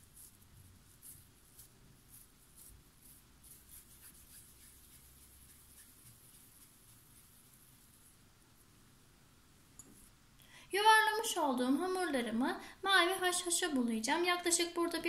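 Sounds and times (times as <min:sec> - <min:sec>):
hands rubbing crumbly dough: 0:00.0 - 0:08.7.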